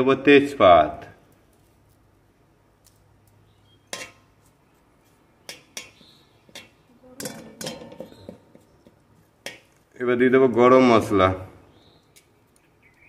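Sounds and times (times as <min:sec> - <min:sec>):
metal spatula scraping a pan: 0:03.9 - 0:04.3, 0:05.4 - 0:09.9.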